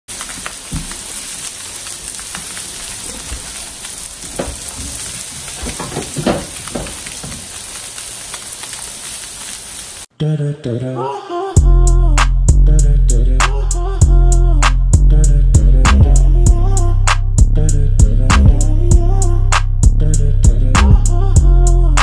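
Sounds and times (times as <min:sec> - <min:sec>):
fish sizzling in oil: 0:00.1 - 0:10.1
music: 0:11.6 - 0:22.0.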